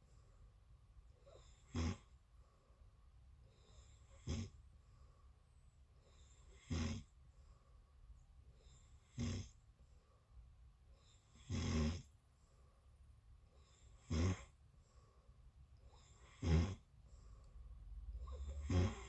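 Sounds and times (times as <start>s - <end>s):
person breathing: 0.0s - 1.4s, 2.3s - 9.0s, 9.7s - 11.4s, 12.2s - 16.3s, 16.9s - 19.0s
person snoring: 3.8s - 4.5s, 6.4s - 7.1s, 11.4s - 12.1s, 14.0s - 14.5s, 16.0s - 16.8s, 18.2s - 19.0s.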